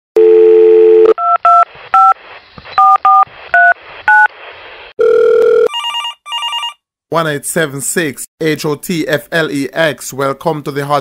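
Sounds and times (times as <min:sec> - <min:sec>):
telephone dial tone: 0:05.0 - 0:06.8.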